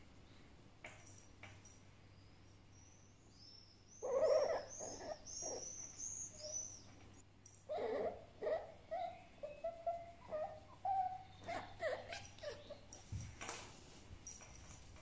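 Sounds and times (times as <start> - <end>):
fox grumbling squeaky calls: 4.0 - 6.8, 7.7 - 13.0.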